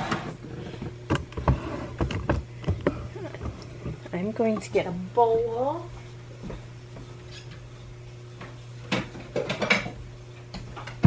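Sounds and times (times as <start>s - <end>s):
steady low hum: 0.0s - 11.0s
dishes clinking and knocking: 8.9s - 10.0s.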